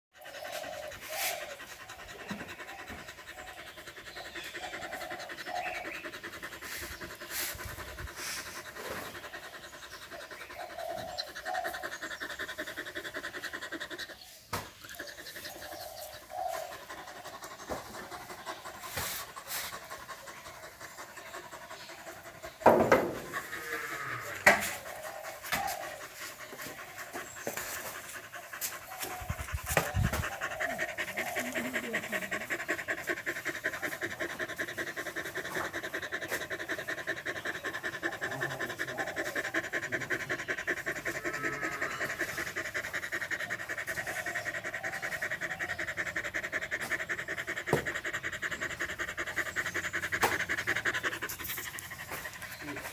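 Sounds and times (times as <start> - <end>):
dog panting: 0.1 - 52.9.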